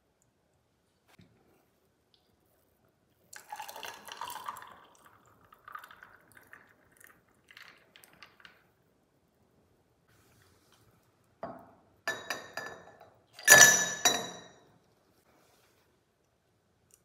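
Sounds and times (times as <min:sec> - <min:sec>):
juice pouring over ice: 0:03.4 - 0:08.6.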